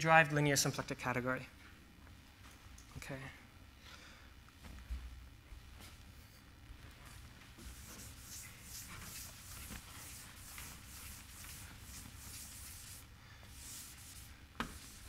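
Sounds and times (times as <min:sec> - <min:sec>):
eraser swishing on chalkboard: 0:07.6 - 0:15.0.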